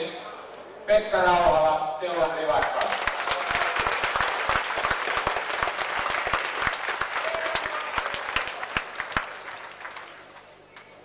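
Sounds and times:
crowd applauding: 0:02.5 - 0:11.0.

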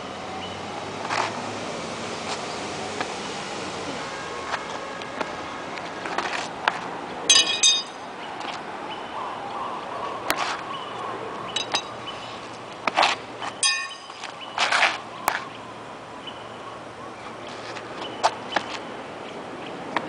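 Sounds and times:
metal sai clinking: 0:07.3 - 0:08.1, 0:11.5 - 0:12.0, 0:13.6 - 0:14.3.

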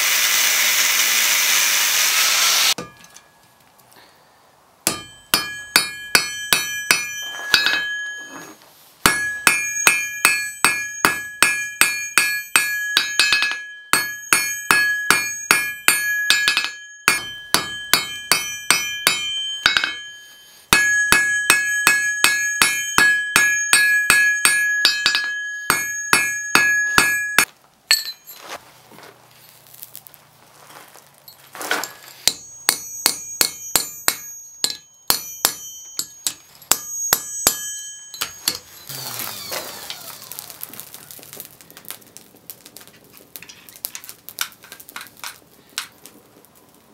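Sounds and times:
hammer striking steel on anvil: 0:02.7 - 0:03.3, 0:04.8 - 0:28.4, 0:31.8 - 0:39.0.

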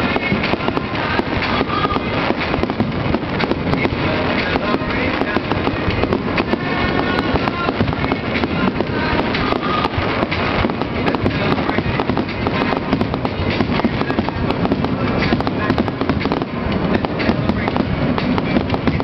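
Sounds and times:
fireworks crackling pops: 0:00.0 - 0:19.0.

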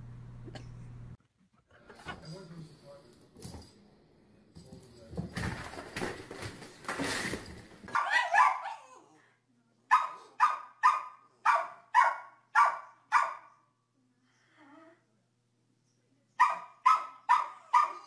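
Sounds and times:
rustling and scuffling: 0:04.6 - 0:08.0
small dog barking: 0:07.9 - 0:09.0, 0:09.9 - 0:13.6, 0:16.4 - 0:18.0.

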